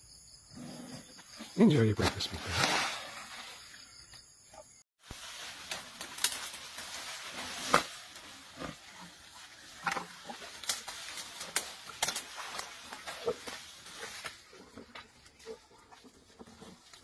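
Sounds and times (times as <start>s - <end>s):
leaves rustling: 5.0s - 14.8s
twigs crackling and snapping: 5.1s - 8.0s, 9.8s - 14.4s.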